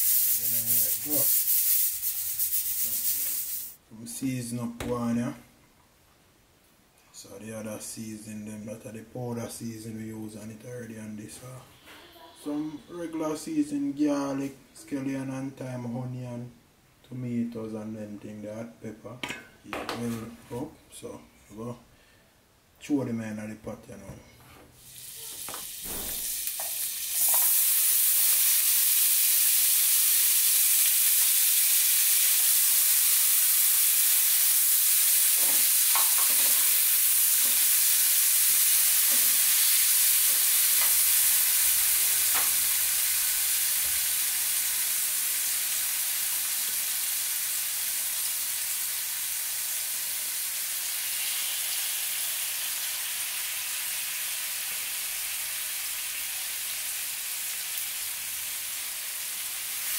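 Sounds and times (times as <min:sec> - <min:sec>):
vegetables sizzling in butter: 0:00.0 - 0:03.8, 0:24.8 - 0:59.9.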